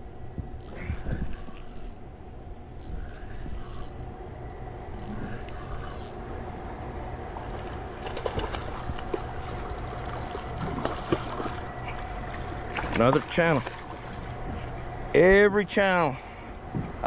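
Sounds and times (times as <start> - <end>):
spillway water rushing: 6.2 - 16.4.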